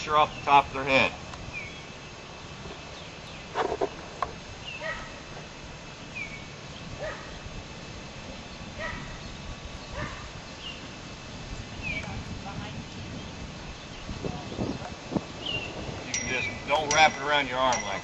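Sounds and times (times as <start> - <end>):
high falling bird chirps: 1.4 - 7.4, 8.2 - 12.1, 13.0 - 18.0
dog yipping: 4.8 - 5.2, 7.0 - 7.3, 8.8 - 9.2, 9.9 - 10.3.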